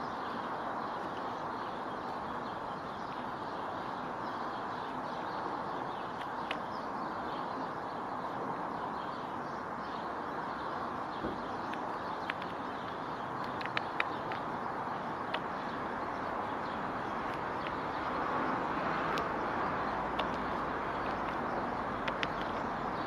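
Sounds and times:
outdoor background hiss: 0:00.0 - 0:23.0
woodpecker pecking at nut shell: 0:13.4 - 0:14.5.

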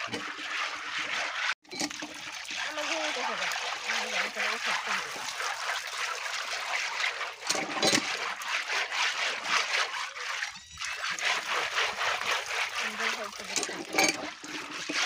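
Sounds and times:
water pouring and splashing: 0:00.0 - 0:15.0.

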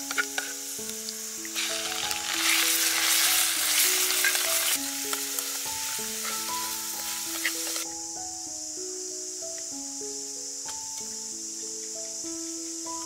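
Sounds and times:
garlic sizzling in hot oil: 0:00.0 - 0:07.9.

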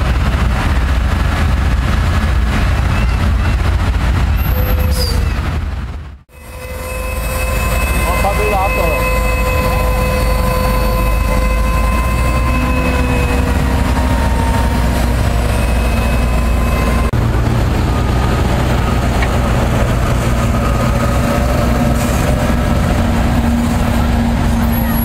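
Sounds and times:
tractor diesel engines rumbling: 0:00.0 - 0:25.0
high engine whine: 0:06.3 - 0:25.0.

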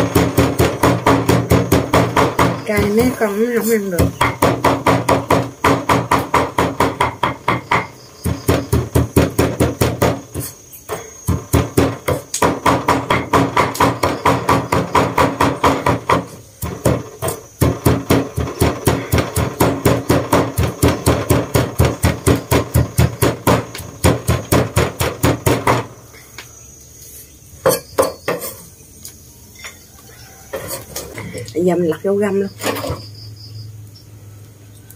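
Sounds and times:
cleaver chopping on wooden board: 0:00.0 - 0:03.2, 0:04.0 - 0:26.0.

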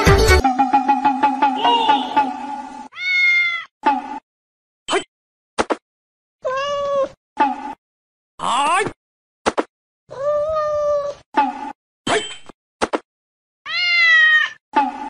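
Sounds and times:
cat meowing: 0:02.9 - 0:03.7, 0:06.4 - 0:07.2, 0:10.1 - 0:11.2, 0:13.7 - 0:14.6.

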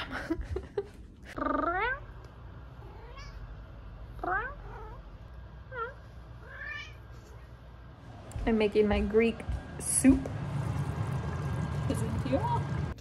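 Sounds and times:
cat meowing: 0:02.9 - 0:03.4, 0:05.7 - 0:07.1.

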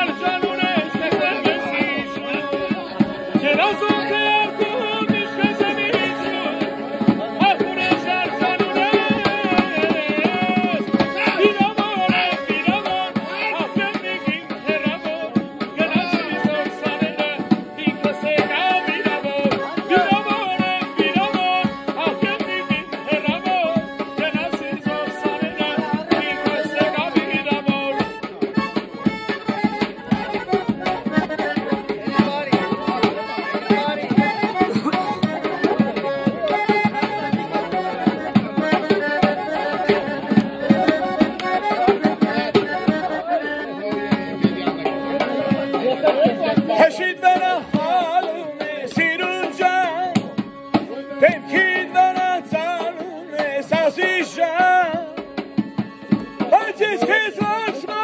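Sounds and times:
hand-drumming on a tabletop: 0:00.0 - 0:43.3
piano accordion playing folk tune: 0:00.0 - 0:58.0.

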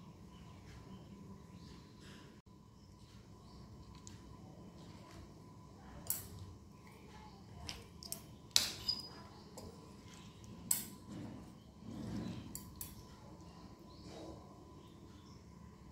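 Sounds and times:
spoon clinking on ceramic plate: 0:08.6 - 0:09.7.

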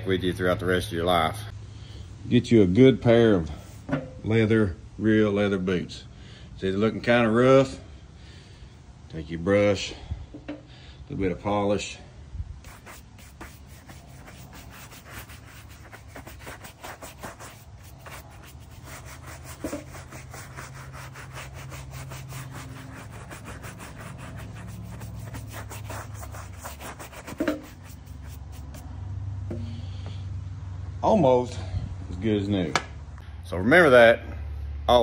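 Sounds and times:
shoe brush scrubbing leather: 0:12.6 - 0:28.8.

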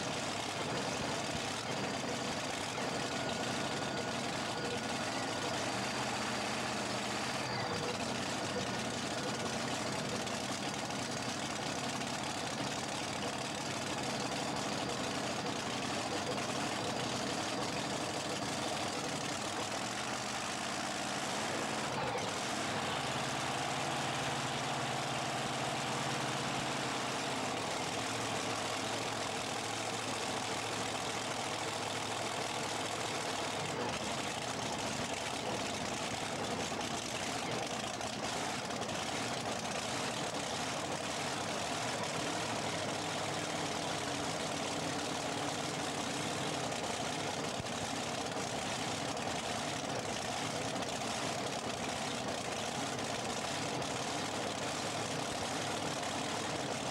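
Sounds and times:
tractor engines idling: 0:00.0 - 0:56.9.

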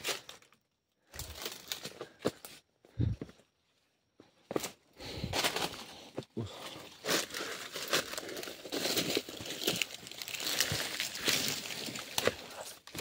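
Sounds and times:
footsteps crunching through undergrowth: 0:06.9 - 0:13.0.

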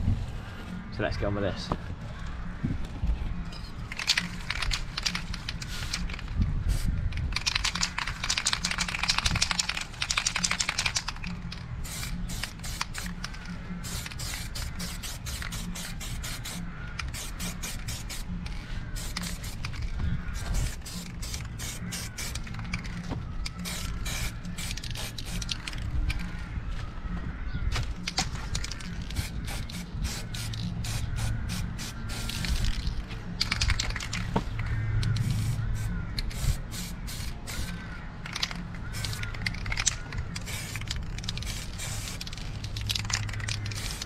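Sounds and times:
background music with bass: 0:11.1 - 0:44.0
spray can hissing: 0:11.8 - 0:13.2, 0:13.8 - 0:18.3, 0:19.0 - 0:22.9, 0:23.5 - 0:25.8, 0:28.9 - 0:32.9, 0:35.1 - 0:44.0.

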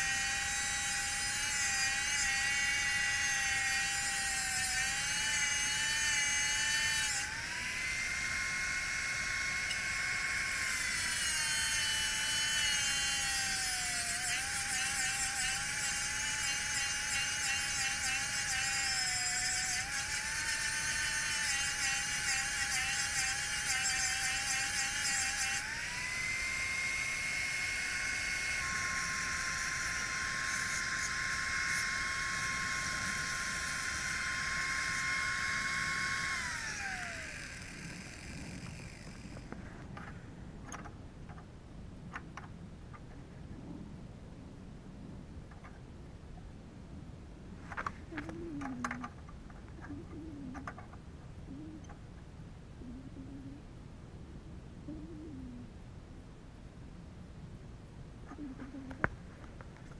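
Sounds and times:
angle grinder grinding steel: 0:00.0 - 0:39.6.

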